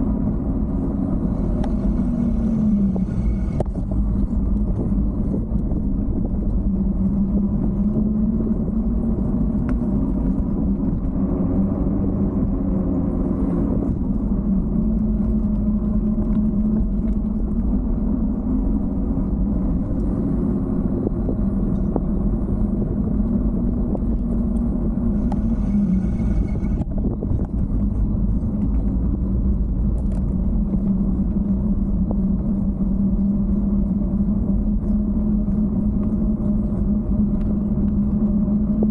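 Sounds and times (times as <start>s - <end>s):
bicycle tyres rumbling on pavement: 0.0s - 38.9s
low steady hum: 0.0s - 38.9s
wind on microphone: 0.0s - 38.9s
brief high whine: 25.2s - 27.0s.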